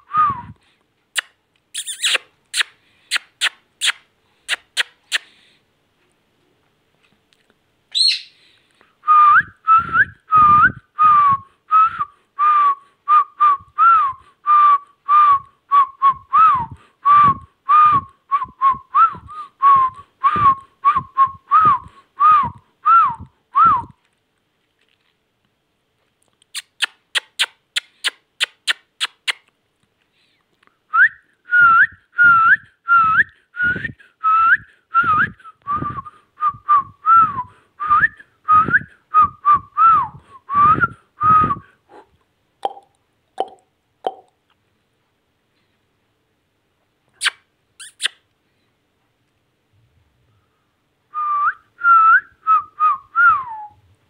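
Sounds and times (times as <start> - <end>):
high sharp chirps: 1.2 - 5.2, 47.2 - 48.2.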